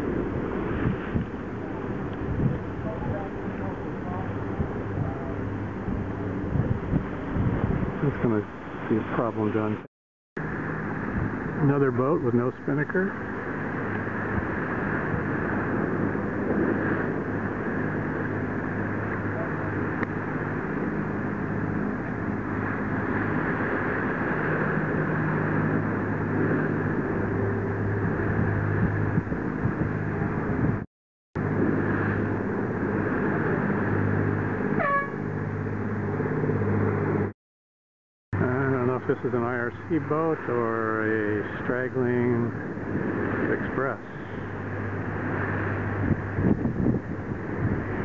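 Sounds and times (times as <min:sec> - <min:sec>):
engine humming: 0:13.2 - 0:30.8, 0:31.4 - 0:37.3.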